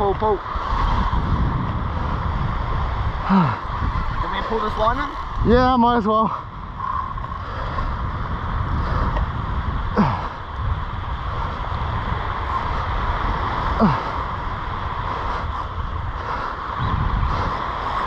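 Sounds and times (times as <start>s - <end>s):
wind buffeting microphone: 0.0s - 18.0s
person grunting with effort: 3.2s - 3.7s, 9.9s - 10.4s, 13.7s - 14.2s.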